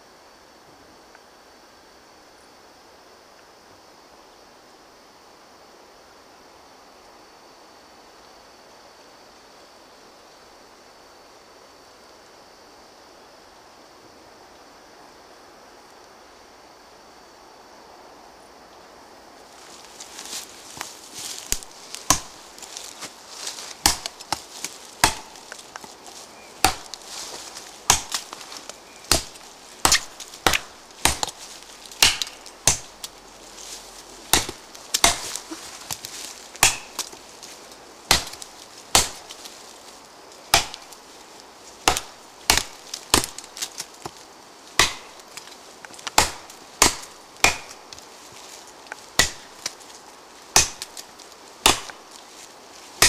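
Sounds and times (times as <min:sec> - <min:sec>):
blade chopping into tree trunk: 0:20.8 - 0:23.0, 0:23.8 - 0:25.9, 0:26.6 - 0:33.1, 0:34.3 - 0:37.2, 0:38.1 - 0:39.4, 0:40.5 - 0:41.0, 0:41.8 - 0:44.2, 0:44.8 - 0:47.8, 0:49.1 - 0:49.8, 0:50.5 - 0:51.0, 0:51.6 - 0:52.0.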